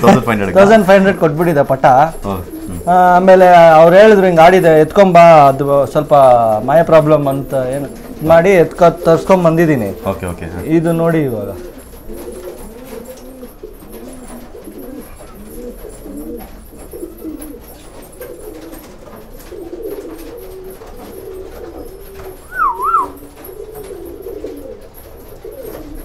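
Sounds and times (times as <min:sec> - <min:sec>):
pigeons cooing: 0:00.0 - 0:26.0
loud warbling whistle: 0:22.5 - 0:23.2.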